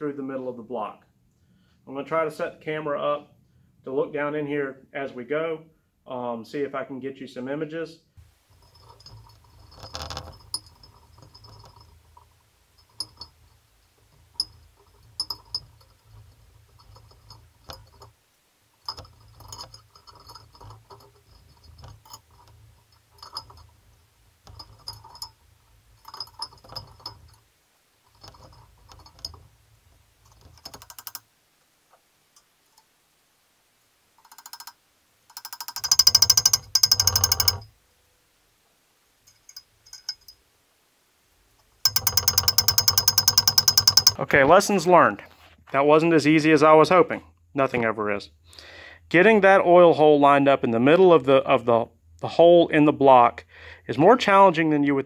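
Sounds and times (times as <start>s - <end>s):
hammer tapping on metal: 35.3s - 37.6s, 41.9s - 44.2s.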